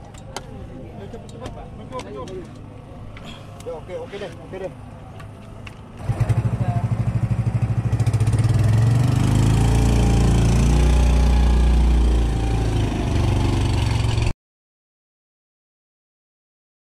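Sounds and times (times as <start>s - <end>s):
boat engine running: 6.0s - 14.3s.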